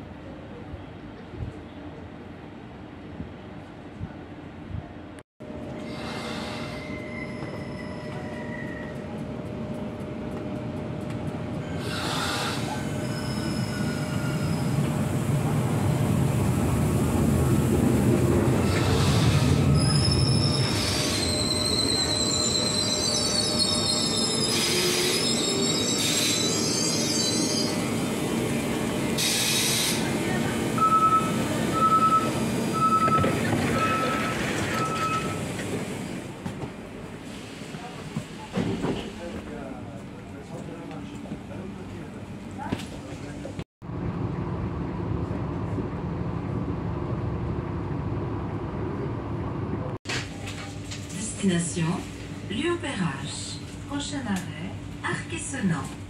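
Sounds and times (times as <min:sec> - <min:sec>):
railway rumble: 0:00.0 - 0:56.0
train wheels squealing: 0:05.8 - 0:09.2, 0:11.6 - 0:14.9, 0:18.7 - 0:27.9
station ambience: 0:29.8 - 0:37.2.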